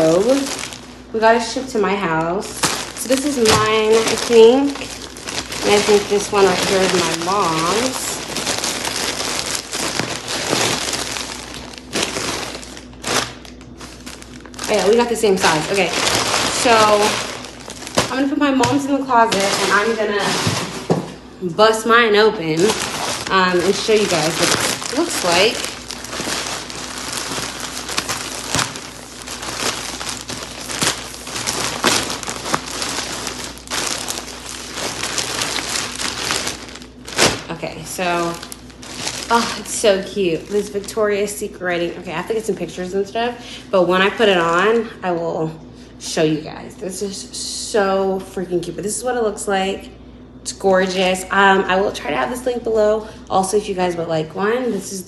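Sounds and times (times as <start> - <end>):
sharp plastic crackles: 0.0 - 1.0, 2.2 - 21.2, 22.5 - 41.1
plastic packaging crinkling: 0.0 - 42.9.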